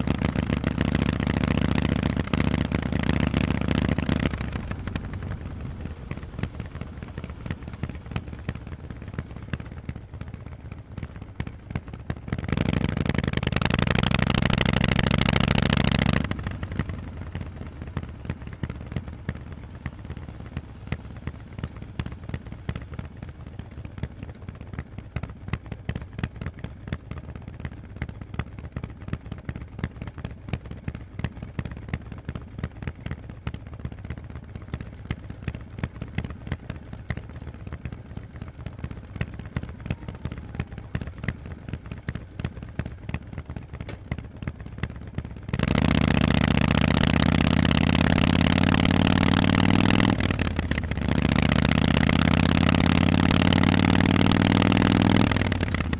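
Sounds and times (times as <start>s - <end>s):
motorcycle engine revving: 0.0s - 25.3s, 38.4s - 55.9s.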